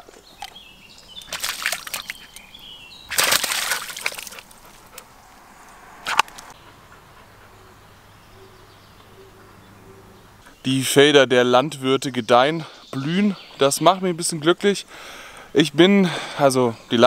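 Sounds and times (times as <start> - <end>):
dog splashing in puddle: 1.2 - 2.4, 3.1 - 5.1.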